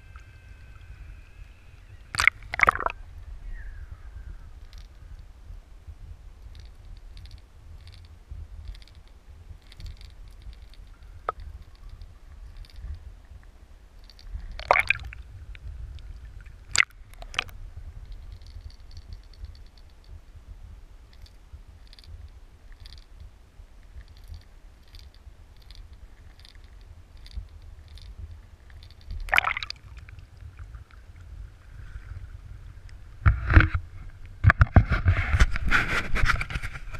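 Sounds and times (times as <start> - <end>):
underwater river current rumble: 0.0 - 36.9.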